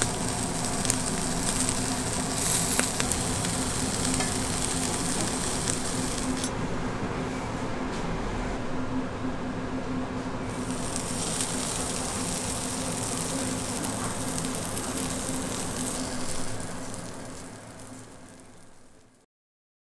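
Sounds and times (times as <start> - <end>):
meat sizzling on a grill plate: 0.0 - 6.5, 10.5 - 19.2.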